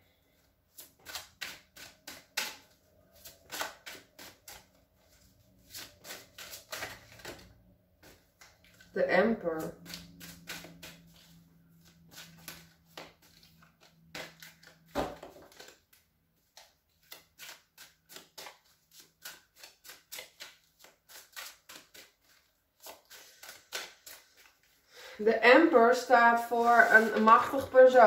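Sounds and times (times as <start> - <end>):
cards shuffling: 0.7 - 8.9, 9.5 - 24.8.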